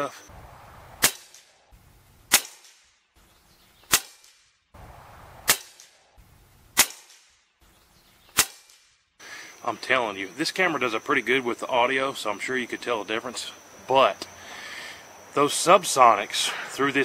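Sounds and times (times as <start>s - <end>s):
suppressed rifle shots: 1.0s - 1.5s, 2.3s - 2.8s, 3.9s - 4.4s, 5.4s - 6.0s, 6.7s - 7.3s, 8.3s - 8.9s.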